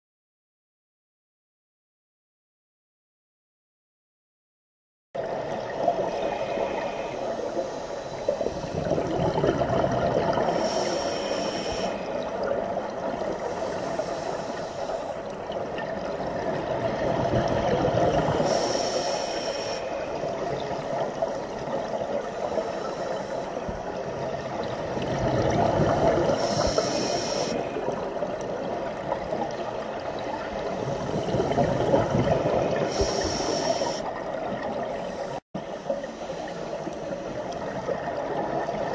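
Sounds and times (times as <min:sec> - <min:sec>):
exhaled bubbles hissing: 0:05.2 - 0:38.9
diver breathing through regulator: 0:06.3 - 0:09.2, 0:10.3 - 0:12.4, 0:13.4 - 0:15.4, 0:18.4 - 0:20.2, 0:22.2 - 0:24.0, 0:26.1 - 0:27.9, 0:32.3 - 0:34.1.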